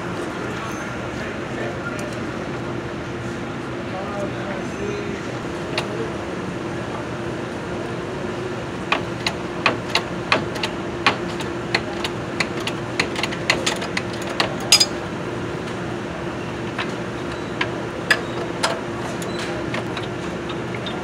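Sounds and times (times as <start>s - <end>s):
metal tools clicking and clinking: 14.7s - 15.0s.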